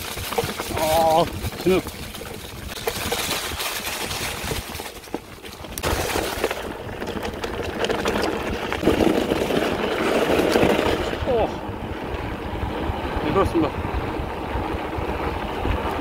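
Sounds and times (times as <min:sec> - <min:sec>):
tyres crunching on dry leaves: 0:00.0 - 0:11.4
bike rattling over bumps: 0:00.0 - 0:16.0.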